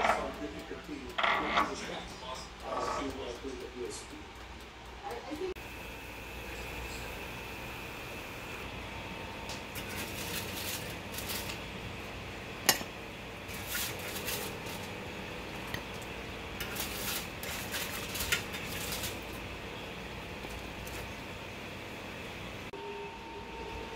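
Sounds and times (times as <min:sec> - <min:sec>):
fork scraping on baking tray: 0:01.2 - 0:01.9, 0:02.6 - 0:03.2, 0:13.5 - 0:14.9, 0:16.6 - 0:19.3
aluminium foil crinkling: 0:09.6 - 0:11.8, 0:13.5 - 0:19.6.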